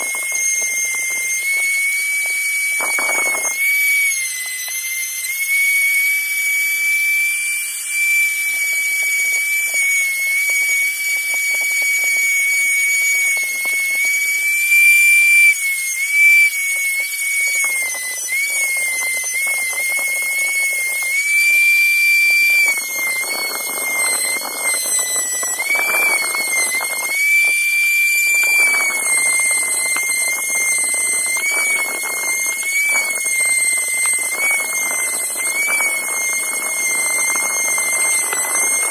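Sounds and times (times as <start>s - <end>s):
rotary tool whining: 0.0s - 38.9s.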